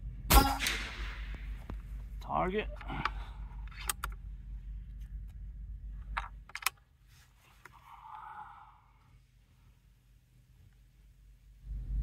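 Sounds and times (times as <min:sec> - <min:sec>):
air rifle mechanical clicks: 0:02.7 - 0:04.3, 0:06.0 - 0:06.9
low wind rumble: 0:11.2 - 0:12.0.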